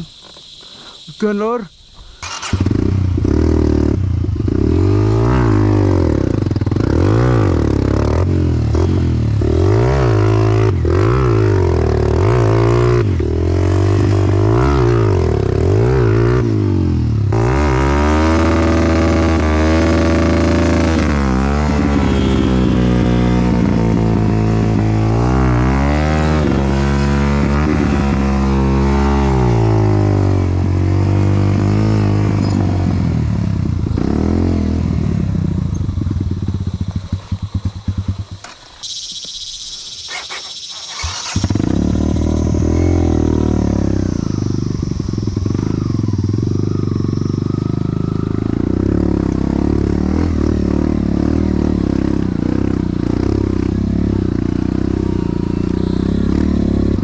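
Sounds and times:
dirt bike engine revving: 0:02.2 - 0:57.0.

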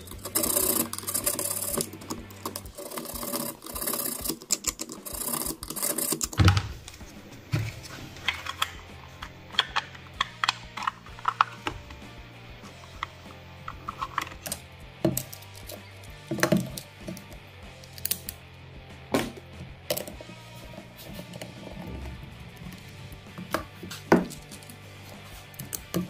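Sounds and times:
plastic part scraping and clicking: 0:07.6 - 0:12.0, 0:12.7 - 0:15.8.

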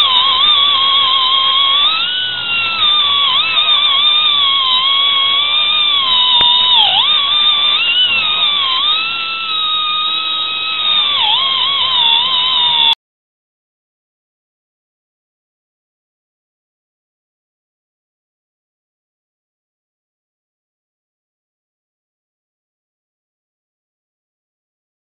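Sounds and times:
angle grinder whining on steel: 0:00.0 - 0:13.0.

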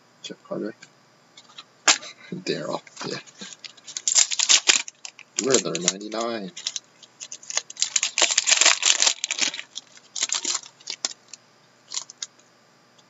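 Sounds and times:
foil wrapper crinkling and tearing: 0:03.0 - 0:12.3.

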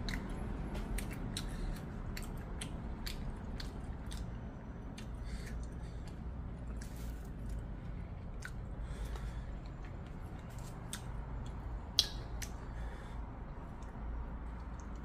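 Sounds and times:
chewing: 0:00.0 - 0:12.6
steady low hum: 0:00.0 - 0:15.0.

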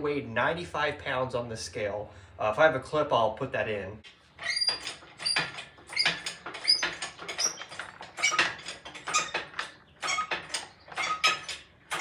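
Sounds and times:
engine hoist squeaks and clicks: 0:04.4 - 0:12.0.

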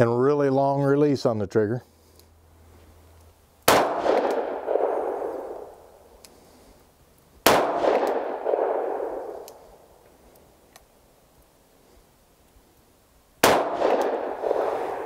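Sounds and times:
revolver shots with echo: 0:03.7 - 0:05.7, 0:07.5 - 0:09.4, 0:13.4 - 0:15.0.

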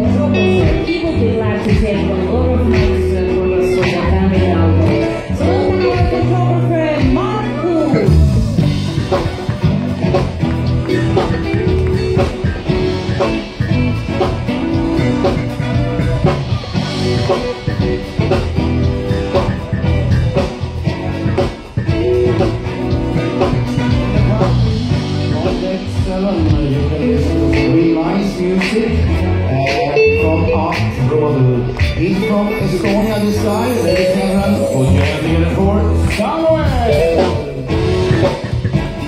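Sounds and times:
person singing: 0:00.0 - 0:09.4, 0:23.4 - 0:38.4
guitar: 0:00.0 - 0:39.0
live band playing: 0:00.0 - 0:39.0.

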